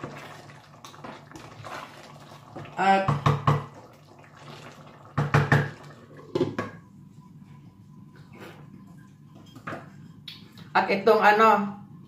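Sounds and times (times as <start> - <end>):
wooden spoon stirring pot: 0.0 - 10.2.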